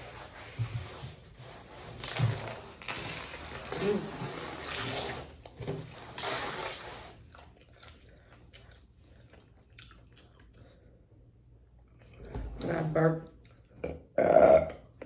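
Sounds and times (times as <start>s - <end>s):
paper towel rubbing table: 0.0s - 7.2s
sipping through a straw: 1.5s - 7.9s.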